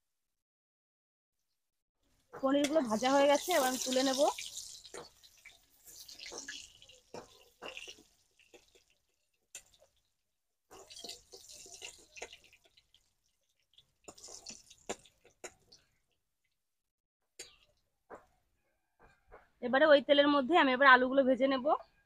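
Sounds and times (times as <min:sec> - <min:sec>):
hot oil sizzling and crackling: 0:02.1 - 0:16.2
spoon clinking and scraping pan: 0:02.6 - 0:09.0, 0:10.7 - 0:13.0, 0:13.8 - 0:15.7.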